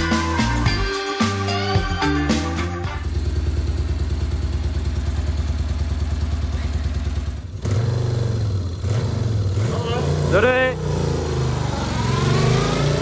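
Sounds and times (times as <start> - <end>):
motorcycle engine idling: 2.8 - 11.2.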